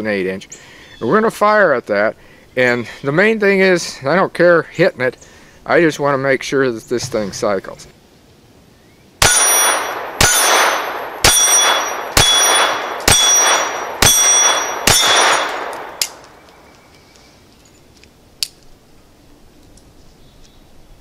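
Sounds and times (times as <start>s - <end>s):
pistol shots: 9.2s - 16.4s
pistol click: 11.6s - 16.6s.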